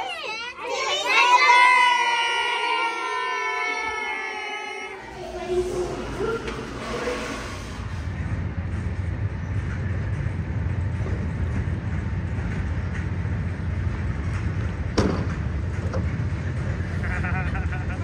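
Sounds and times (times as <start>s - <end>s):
vehicle rumbling: 5.0s - 18.0s.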